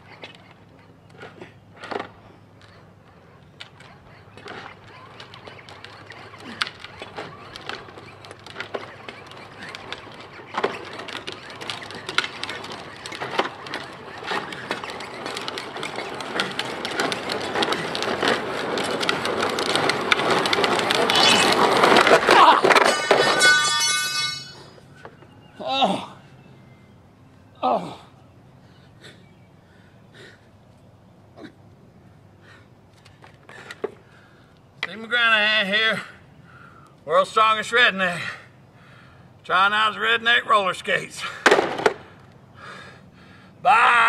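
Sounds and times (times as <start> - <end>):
plastic wheels rolling on asphalt: 0.0 - 25.5, 31.8 - 44.0
man crashing on pavement: 14.4 - 24.6, 41.2 - 42.1
high-pitched tone: 22.8 - 24.9.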